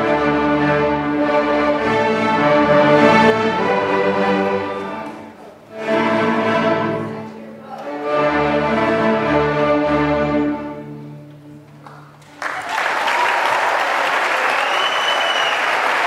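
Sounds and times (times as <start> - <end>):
string orchestra bowed chords: 0.0 - 12.3.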